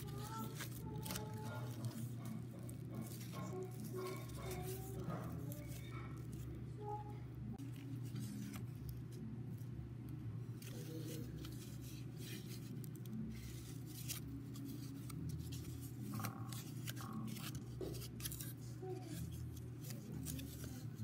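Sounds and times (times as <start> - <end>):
cardboard rustling: 0.0 - 6.5.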